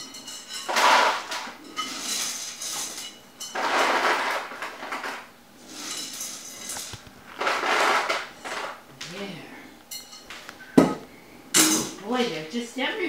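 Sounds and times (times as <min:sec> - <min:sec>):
metal pots and pans clattering: 0:00.0 - 0:08.8, 0:11.6 - 0:12.2
dry macaroni rattling: 0:00.5 - 0:08.8.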